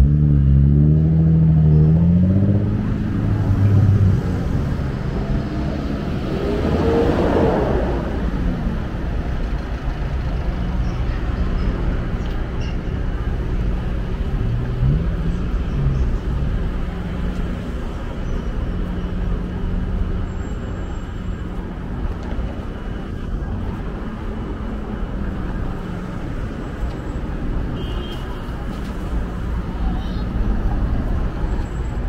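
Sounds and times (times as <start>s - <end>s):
vehicle engine accelerating: 0.0s - 10.4s, 13.2s - 18.2s
traffic engines: 0.0s - 32.0s
tyres on road: 0.0s - 32.0s.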